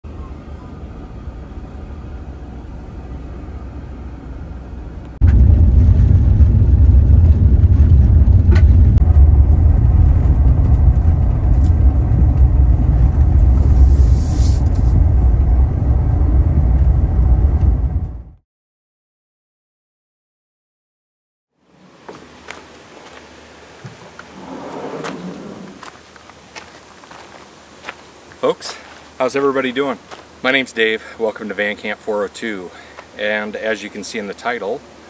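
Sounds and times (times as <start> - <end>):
van rumbling on road: 0.1 - 18.4, 24.0 - 26.7
wind noise: 5.2 - 18.4.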